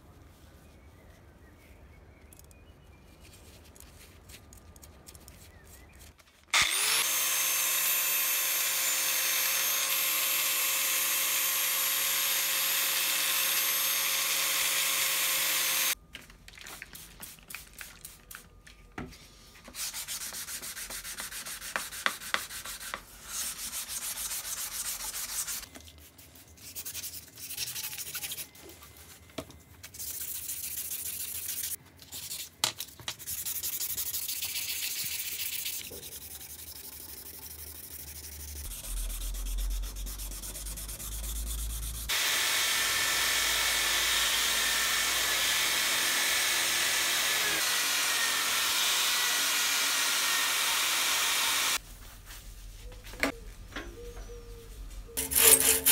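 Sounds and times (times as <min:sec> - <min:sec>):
angle grinder running: 0:06.6 - 0:16.0, 0:42.1 - 0:51.8, 0:55.2 - 0:55.9
sandpaper rubbing on steel blade: 0:19.8 - 0:28.6, 0:29.8 - 0:32.5, 0:33.2 - 0:42.1, 0:55.2 - 0:55.9.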